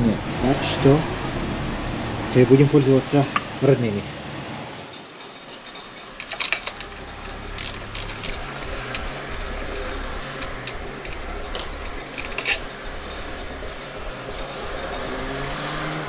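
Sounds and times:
steady low hum: 0:00.0 - 0:04.7, 0:06.0 - 0:16.0
metallic clicks of bolts and tools: 0:04.9 - 0:12.7.

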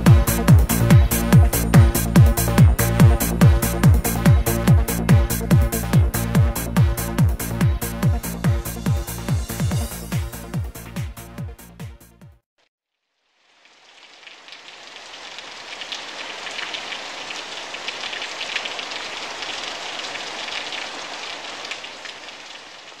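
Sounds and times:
rain falling: 0:13.2 - 0:23.0.

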